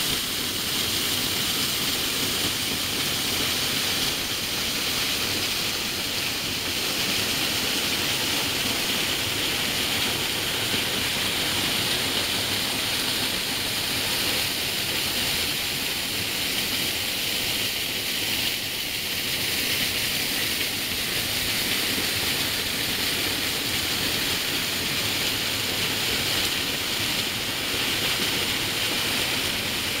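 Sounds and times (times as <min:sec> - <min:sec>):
waterfall pouring over rocks: 0:00.0 - 0:30.0.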